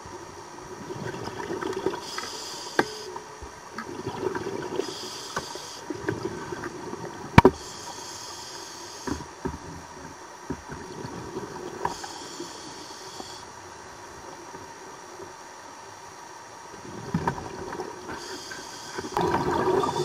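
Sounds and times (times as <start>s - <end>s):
exhaled bubbles gurgling: 0.7s - 2.2s, 3.8s - 5.1s, 16.8s - 20.0s
regulator inhalation hiss: 2.0s - 3.2s, 4.8s - 5.9s, 7.6s - 9.3s, 11.8s - 13.5s, 18.1s - 20.0s.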